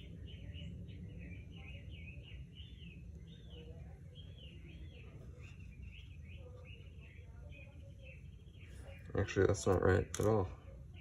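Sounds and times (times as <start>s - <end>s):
small bird chirping: 0.0s - 11.0s.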